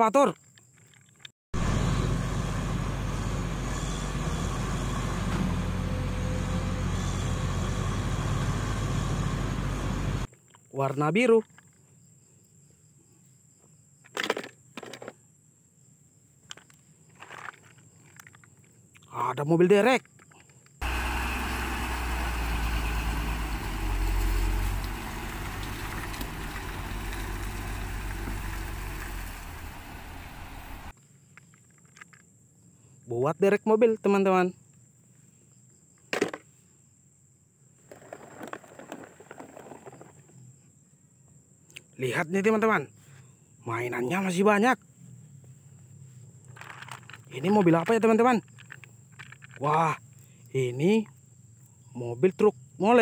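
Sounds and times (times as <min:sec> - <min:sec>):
excavator diesel engine under load: 0:01.6 - 0:10.3, 0:20.8 - 0:30.9.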